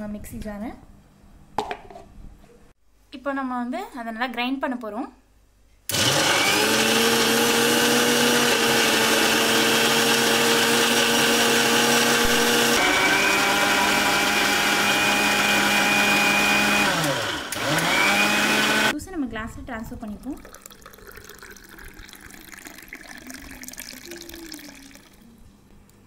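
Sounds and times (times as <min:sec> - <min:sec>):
mixer grinder motor whining: 0:05.9 - 0:18.9.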